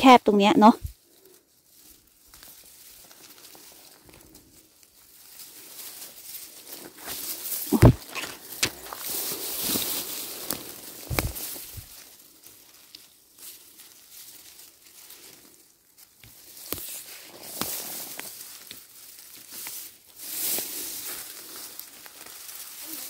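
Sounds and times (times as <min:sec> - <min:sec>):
undergrowth rustling and snapping: 0:00.7 - 0:23.0.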